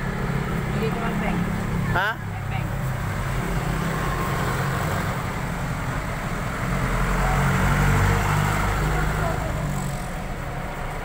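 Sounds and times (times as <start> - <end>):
traffic engine rumble: 0.0 - 11.0.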